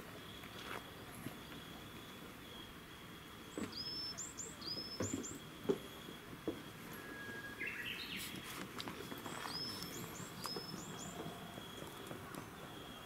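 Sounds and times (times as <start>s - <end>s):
small bird chirping: 3.4s - 6.2s, 7.0s - 13.0s.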